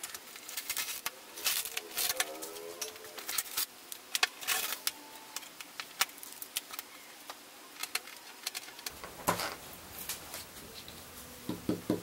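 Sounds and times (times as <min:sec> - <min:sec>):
plastic sheeting crinkling: 0:00.0 - 0:04.9, 0:07.8 - 0:11.4.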